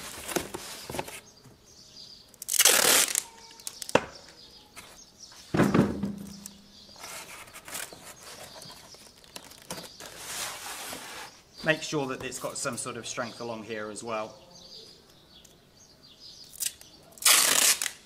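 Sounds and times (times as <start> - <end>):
cardboard taps and crinkles: 0.0 - 1.6, 7.5 - 10.2
tape ripping: 2.4 - 4.0, 16.5 - 18.0.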